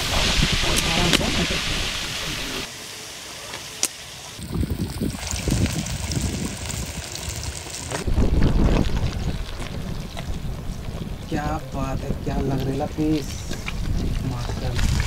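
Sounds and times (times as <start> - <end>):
wind rumbling on microphone: 0.0 - 2.7, 4.4 - 15.0
fish sizzling in hot oil: 0.0 - 8.1.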